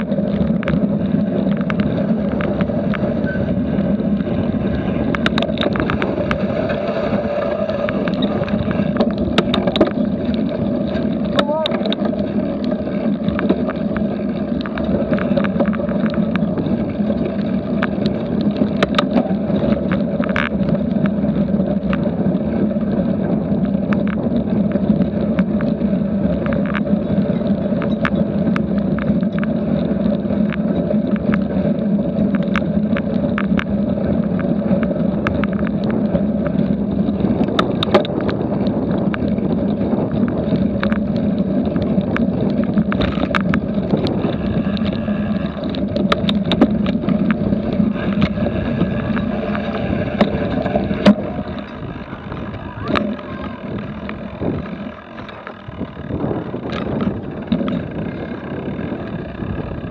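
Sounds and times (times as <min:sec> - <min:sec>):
bike clicks and rattles: 0:00.0 - 0:59.9
bike tyres rumbling: 0:00.0 - 0:59.9
wind: 0:00.0 - 0:59.9.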